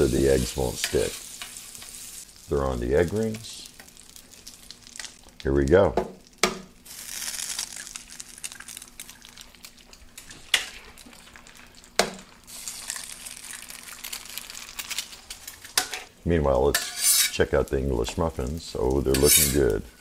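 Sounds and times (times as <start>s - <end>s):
egg sizzling in butter: 0.0s - 5.5s, 6.2s - 17.8s
eggs cracking: 1.8s - 16.1s.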